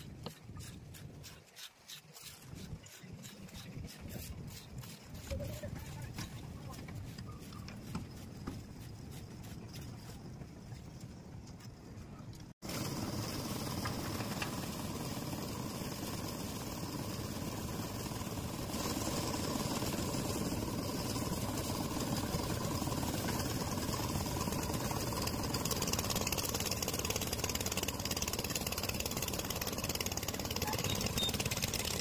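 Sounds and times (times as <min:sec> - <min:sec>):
concrete mixer engine running: 0:12.6 - 0:32.0.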